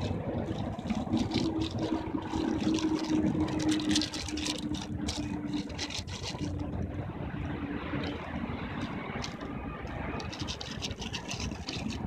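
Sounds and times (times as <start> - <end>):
engine hum: 0.0 - 12.0.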